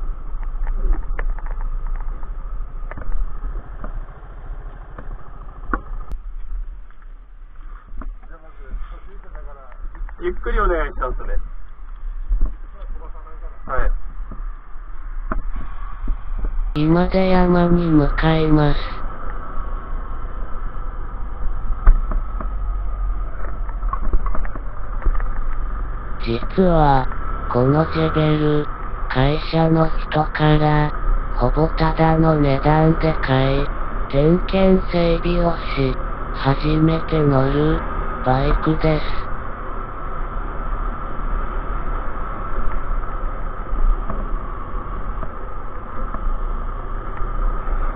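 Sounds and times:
motorcycle engine rumble: 0.0s - 47.9s
wind noise: 18.6s - 34.8s.

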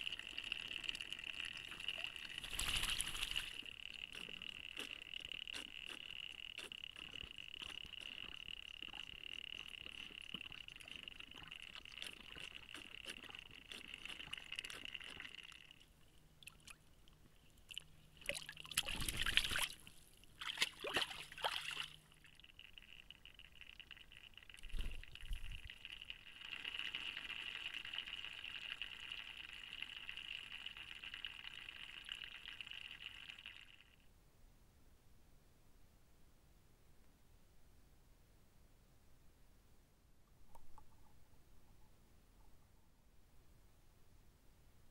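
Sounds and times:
water sloshing and dripping: 0.2s - 4.9s, 16.4s - 23.0s.

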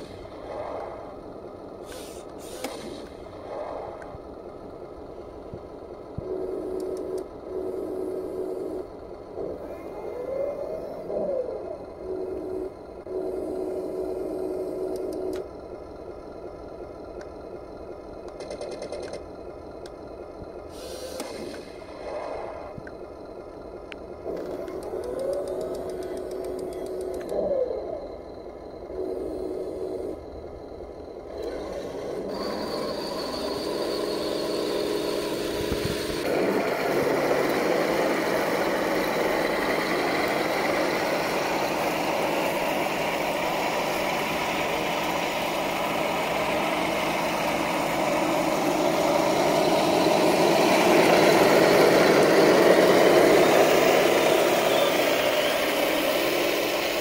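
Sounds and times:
motors and tracks running: 0.0s - 57.0s
toy tank engine hum: 0.0s - 57.0s.

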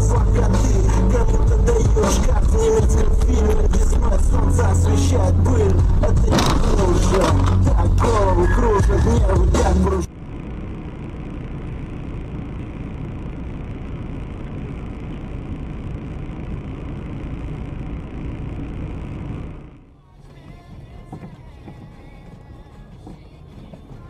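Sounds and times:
voices and music: 0.0s - 10.1s
car engine rumble: 0.0s - 24.0s
faint steady hum: 0.0s - 24.0s.

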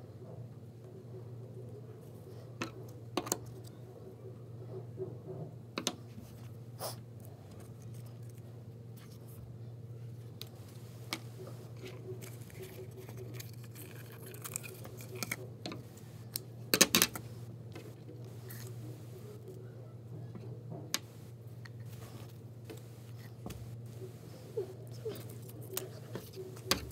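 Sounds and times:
low room hum: 0.0s - 26.9s
hands tapping and rustling: 20.3s - 26.9s.

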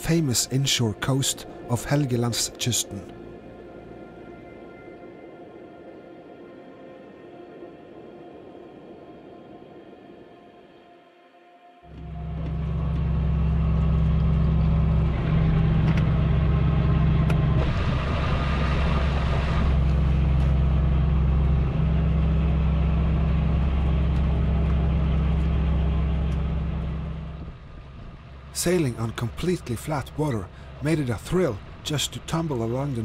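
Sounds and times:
diesel engine humming: 11.9s - 33.0s.

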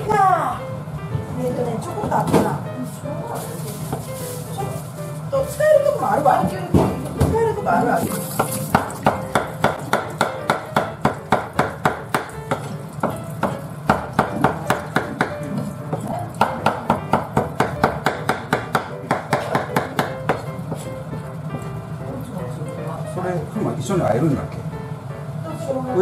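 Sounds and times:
knife chopping on wooden board: 8.4s - 20.9s.

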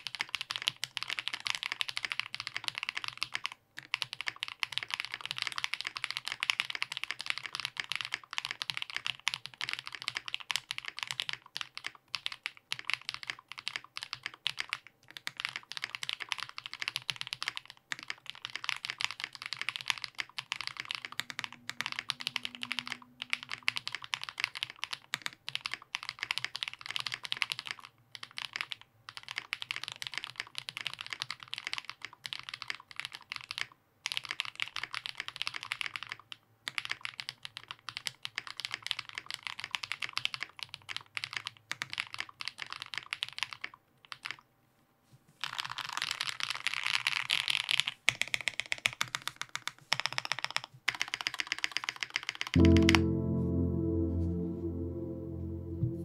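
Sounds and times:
mechanical keyboard typing: 0.0s - 44.4s, 45.4s - 52.8s.

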